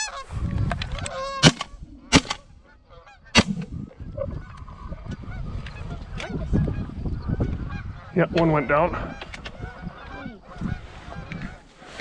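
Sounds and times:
geese honking: 0.0 - 11.9
shotgun shots: 1.4 - 2.4, 3.4 - 3.7.

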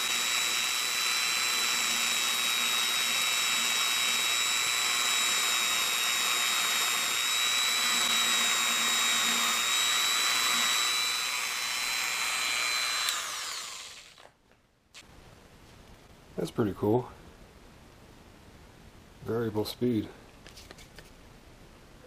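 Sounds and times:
belt sander whining: 0.0 - 14.3.

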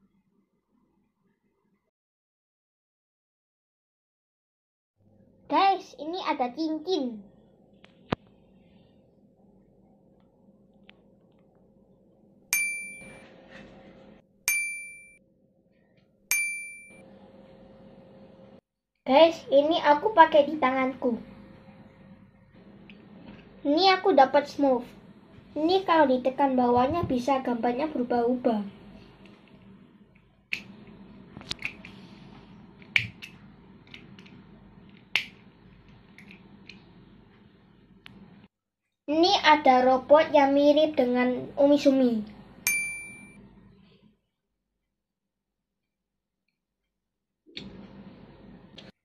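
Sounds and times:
bright bell-like dings: 12.6 - 13.3, 14.5 - 15.2, 16.3 - 17.0, 42.7 - 43.4.

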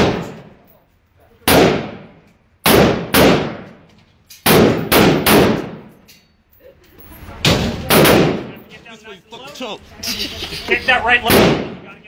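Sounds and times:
rifle shots with echo: 0.0 - 0.5, 1.4 - 3.8, 4.4 - 5.9, 7.5 - 8.6, 11.3 - 11.8.

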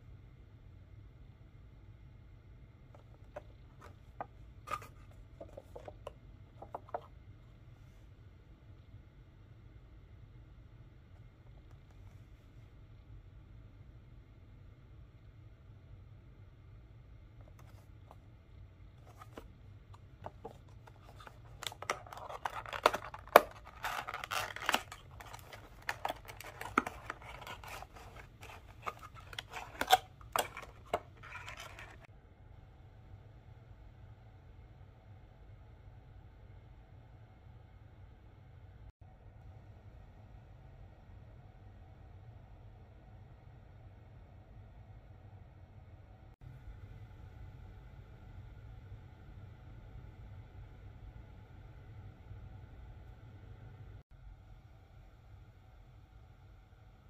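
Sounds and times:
plastic tray crackling and scraping: 3.0 - 7.1, 20.2 - 32.1.

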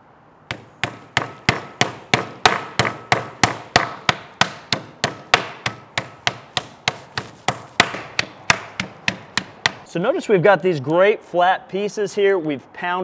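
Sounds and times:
meat mallet thudding: 0.5 - 9.9.

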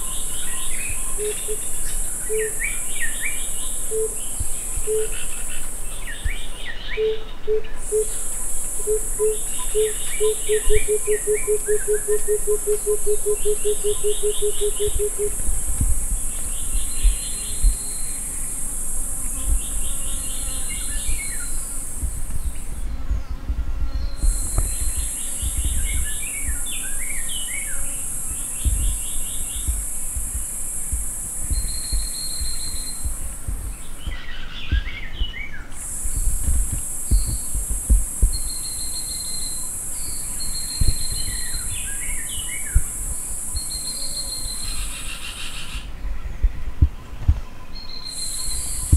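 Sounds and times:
bird chirps and trills: 0.0 - 15.4
high insect drone: 0.0 - 48.9.

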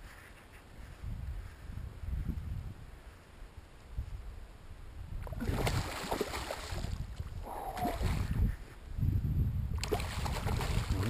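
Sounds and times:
wind on microphone: 0.0 - 3.2, 3.9 - 11.0
water sloshing around kayak: 5.2 - 8.4.

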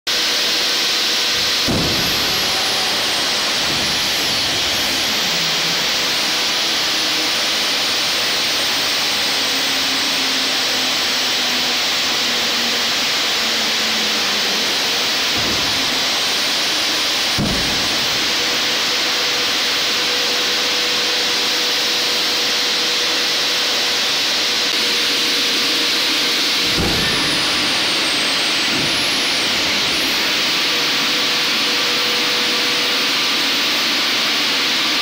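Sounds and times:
hydraulic pumps rushing hiss: 0.8 - 33.6
steady hum: 1.1 - 32.6
dull thumps: 15.3 - 16.3, 17.2 - 18.5.

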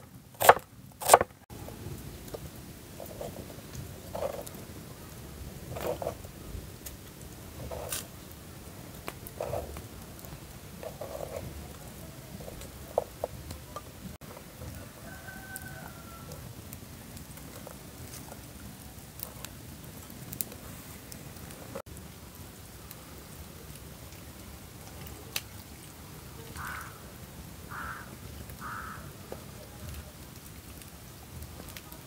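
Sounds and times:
faint steady hiss: 0.0 - 32.0
knife on wooden cutting board: 0.4 - 1.3.

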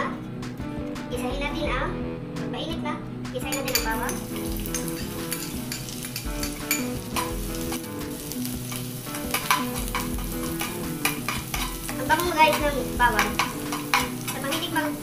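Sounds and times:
metal spoon scraping a pan: 3.5 - 15.0
garlic sizzling in oil: 3.7 - 15.0.

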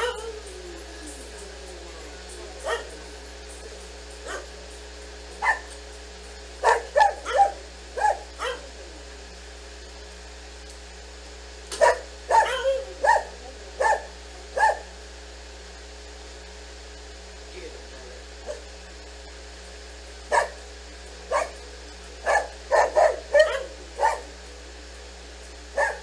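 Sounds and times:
dog barking: 2.6 - 3.0, 4.2 - 4.6, 5.4 - 5.7, 6.6 - 8.7, 11.8 - 14.9, 18.4 - 18.7, 20.3 - 20.6, 21.3 - 21.6, 22.2 - 24.3, 25.8 - 26.0.

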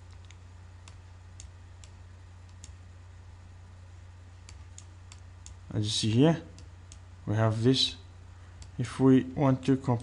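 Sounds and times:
faint low hum: 0.0 - 10.0
computer mouse clicks: 0.1 - 2.8, 4.4 - 5.6.

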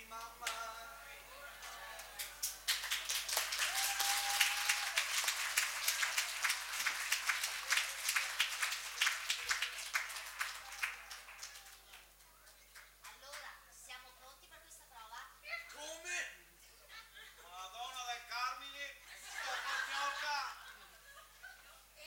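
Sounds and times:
audience applauding: 1.5 - 13.4.

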